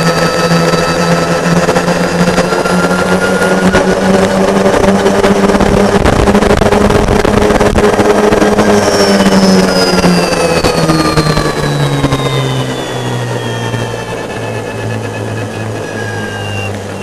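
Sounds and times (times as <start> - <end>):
electric motor whining: 0.0 - 17.0
loud rushing noise: 0.0 - 17.0.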